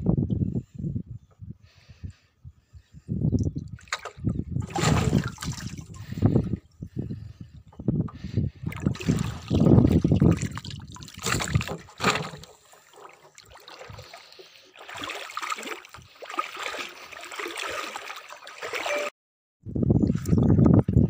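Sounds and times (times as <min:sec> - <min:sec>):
water lapping against plastic tub: 0:03.8 - 0:06.2, 0:08.7 - 0:19.1
trickling splash: 0:08.9 - 0:19.1.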